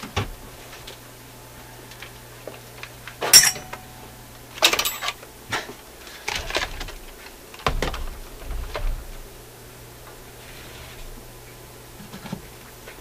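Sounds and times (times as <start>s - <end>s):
objects clattering on a workbench: 12.0s - 12.5s.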